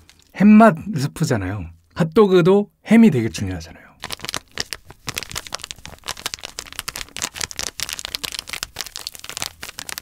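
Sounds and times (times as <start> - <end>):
foil packet crinkling: 0.0 - 0.4, 4.0 - 10.0
powder pattering onto food: 4.0 - 10.0.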